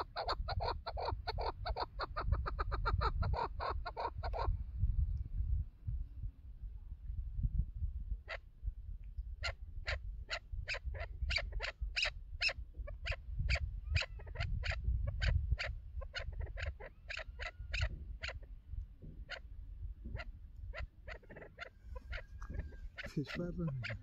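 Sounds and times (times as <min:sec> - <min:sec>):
partridge sharp chuk calls: 0:00.0 - 0:04.5, 0:09.4 - 0:18.5, 0:19.1 - 0:24.0
wind rumbling on microphone: 0:00.0 - 0:24.0.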